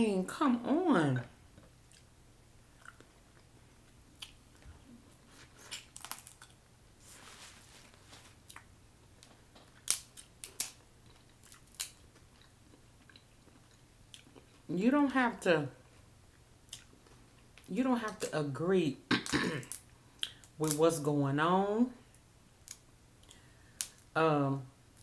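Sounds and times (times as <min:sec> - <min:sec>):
chewing: 0:01.6 - 0:02.1, 0:02.7 - 0:04.7, 0:09.6 - 0:14.6
crab shell cracking: 0:05.7 - 0:06.6, 0:09.6 - 0:12.3.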